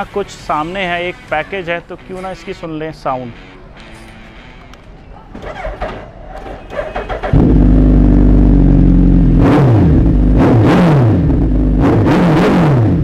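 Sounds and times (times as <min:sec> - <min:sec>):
motorcycle engine idling and revving: 0:05.4 - 0:13.0.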